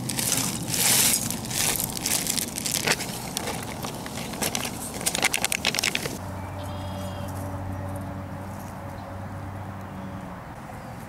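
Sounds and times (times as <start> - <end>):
plastic packet crinkling: 0.0 - 6.2.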